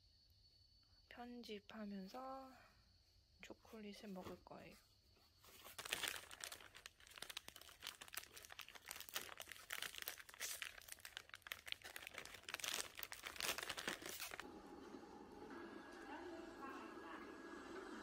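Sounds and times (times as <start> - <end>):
foil wrapper crinkling and tearing: 5.6 - 14.4.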